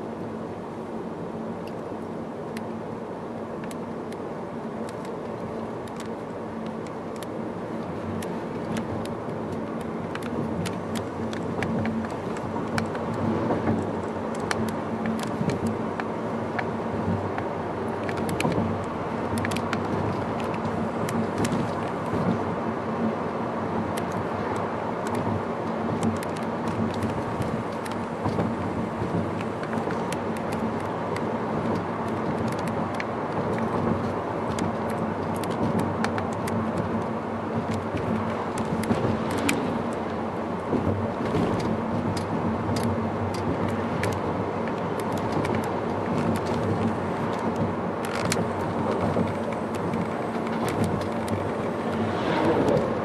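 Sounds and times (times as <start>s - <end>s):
road and engine noise: 0.0s - 53.0s
light clicks and rattles: 23.9s - 40.1s, 40.7s - 53.0s.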